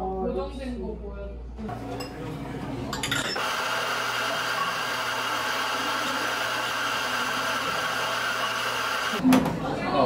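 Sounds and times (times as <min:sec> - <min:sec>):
coffee grinder motor grinding: 0:03.4 - 0:09.2.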